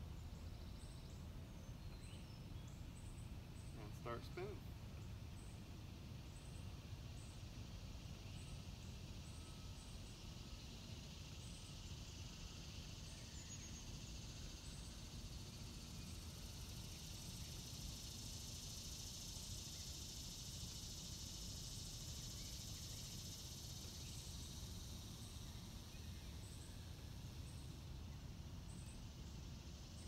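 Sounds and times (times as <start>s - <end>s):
high insect drone: 0.0s - 30.0s.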